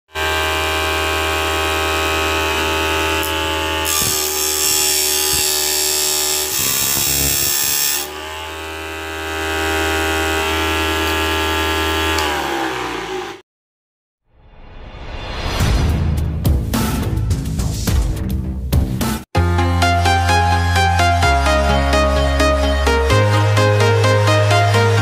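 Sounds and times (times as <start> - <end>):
disc sander motor whine: 0.1 - 13.4.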